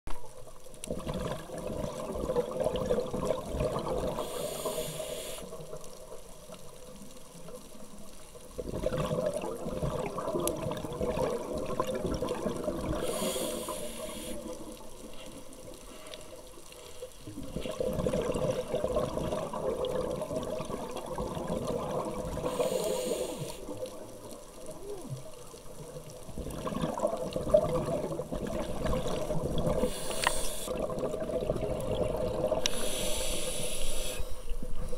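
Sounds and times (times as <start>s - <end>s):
exhaled air bubbling: 0.7s - 6.4s, 8.4s - 15.6s, 17.2s - 34.9s
regulator inhale hiss: 4.1s - 5.8s, 12.9s - 17.2s, 22.4s - 23.8s, 29.7s - 30.8s, 32.6s - 34.9s.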